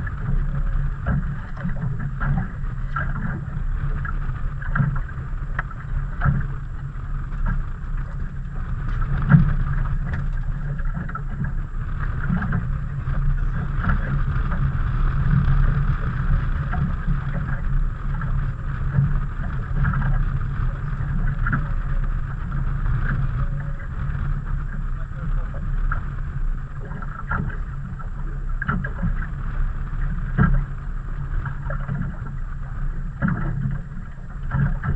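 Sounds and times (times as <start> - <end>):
knocks on boat: 0.0 - 6.6, 7.4 - 11.6, 12.2 - 12.7, 30.3 - 30.7, 33.2 - 34.9
water noise: 0.0 - 34.9
wind: 0.0 - 34.9.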